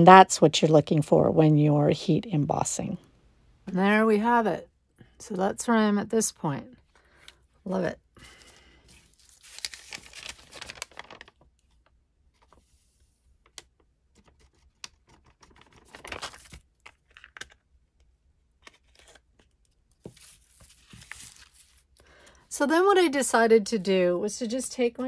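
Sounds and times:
paper rustling and crinkling: 8.3 - 17.6, 18.6 - 22.0.

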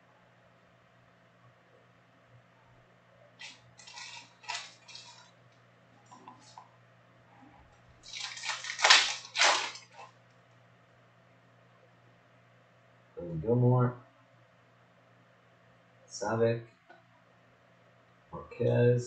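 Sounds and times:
foil wrapper crinkling and tearing: 3.4 - 5.3, 8.0 - 10.1.

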